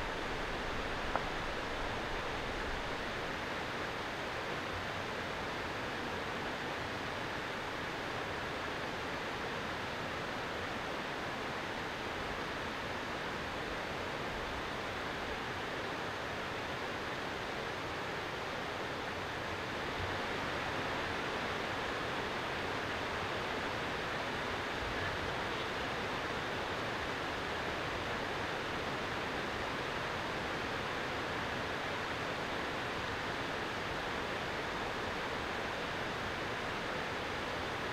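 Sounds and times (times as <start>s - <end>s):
steady rushing noise: 0.0s - 4.3s.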